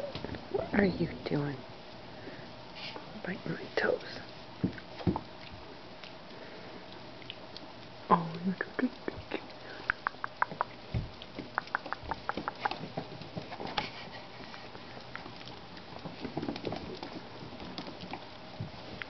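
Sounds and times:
puppy claws clicking on tile: 0:09.7 - 0:14.0.

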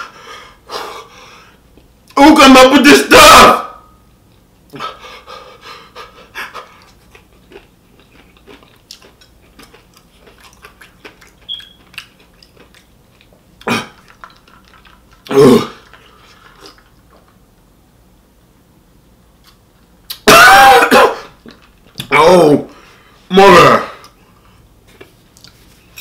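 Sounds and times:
man panting and blowing breath: 0:00.0 - 0:01.6, 0:04.8 - 0:06.8
wet chewing and mouth clicks: 0:06.7 - 0:17.4, 0:25.0 - 0:25.6.

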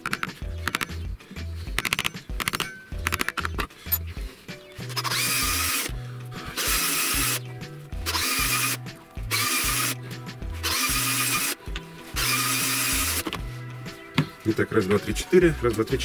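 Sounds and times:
background music with bass line: 0:00.0 - 0:16.0
cordless drill running: 0:04.9 - 0:07.4, 0:08.0 - 0:10.0, 0:10.6 - 0:11.6, 0:12.2 - 0:13.4.

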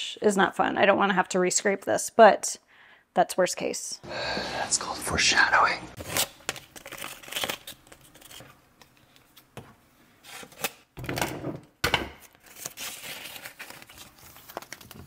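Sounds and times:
tape ripping: 0:06.0 - 0:08.5.

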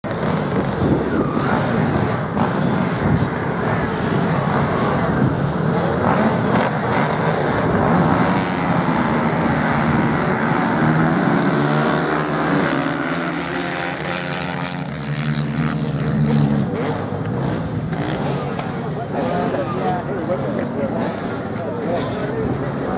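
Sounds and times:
motocross bike engines revving: 0:00.0 - 0:22.9.

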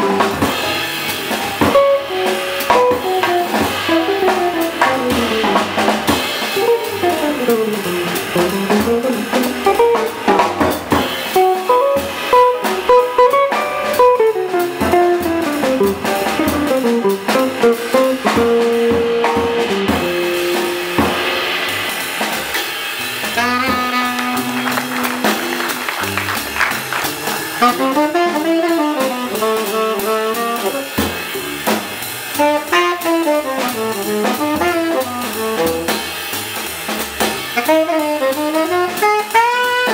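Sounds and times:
tenor saxophone lead: 0:00.0 - 0:05.8, 0:06.5 - 0:10.3, 0:11.2 - 0:22.0, 0:23.1 - 0:31.5, 0:32.3 - 0:36.1, 0:37.5 - 0:39.9
upright bass: 0:00.0 - 0:22.3, 0:23.1 - 0:37.9
drum kit: 0:00.0 - 0:39.9
piano: 0:00.0 - 0:39.9
electric guitar soloing: 0:23.4 - 0:26.9.

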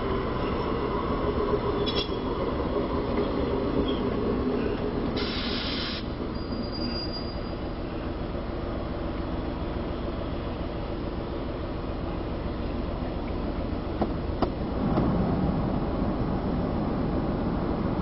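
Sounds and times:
streetcar rumbling on tracks: 0:00.0 - 0:18.0
high wheel squeal: 0:03.7 - 0:08.2
short hiss: 0:05.2 - 0:06.1.

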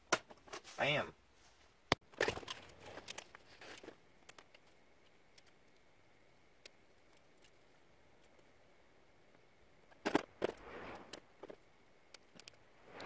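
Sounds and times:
wiring rustling: 0:01.9 - 0:08.5
small plastic clicks: 0:02.1 - 0:08.5, 0:09.9 - 0:13.0.

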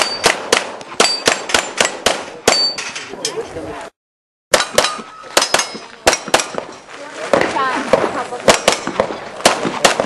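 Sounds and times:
pistol shots: 0:00.0 - 0:02.7, 0:04.5 - 0:06.7, 0:07.3 - 0:10.0.

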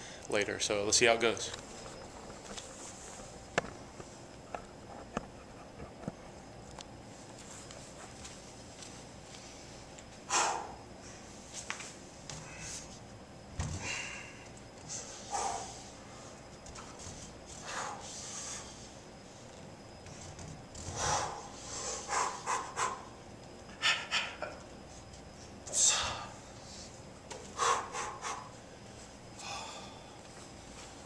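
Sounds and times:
man panting and exhaling hard: 0:10.3 - 0:10.9, 0:13.8 - 0:16.0, 0:20.8 - 0:23.1, 0:27.5 - 0:28.5, 0:29.4 - 0:30.2.

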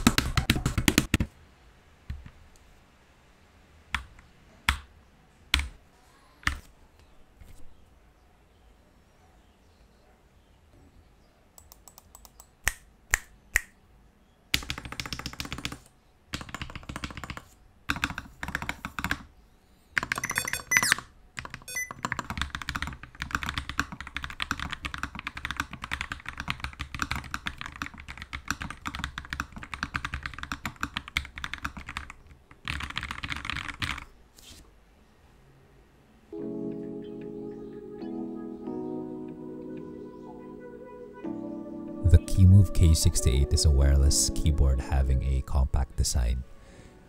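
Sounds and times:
mechanical keyboard typing: 0:00.0 - 0:01.3, 0:11.6 - 0:12.5, 0:14.6 - 0:19.3, 0:20.0 - 0:34.1.

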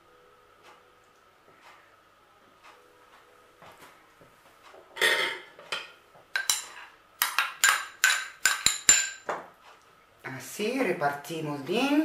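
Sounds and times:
glass and metal clinking: 0:05.0 - 0:09.3.

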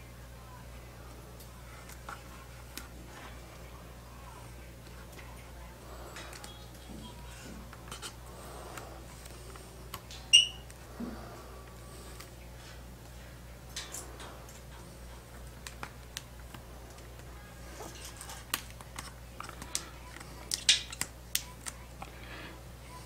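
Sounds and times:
high ringing tone: 0:10.3 - 0:10.6
vinyl decal crackling and rustling: 0:14.5 - 0:22.4.

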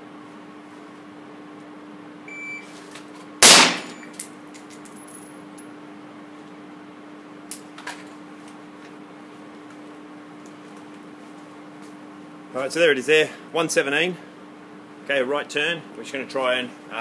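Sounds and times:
shot timer beep: 0:02.3 - 0:02.7
suppressed gunshot: 0:03.4 - 0:03.9.

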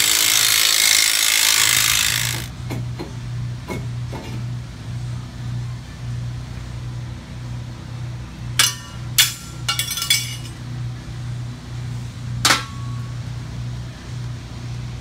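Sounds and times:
metal parts clinking and clanking: 0:08.6 - 0:10.6.

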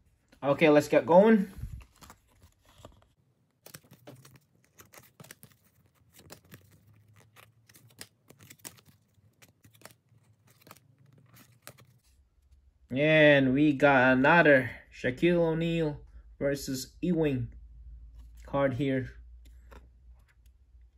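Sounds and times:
cards sliding and clicking: 0:01.6 - 0:12.2, 0:19.4 - 0:20.6.

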